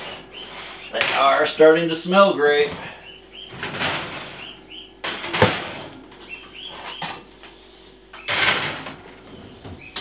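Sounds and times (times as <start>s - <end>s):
metal pans clattering and scraping: 3.6s - 6.0s, 8.2s - 9.4s.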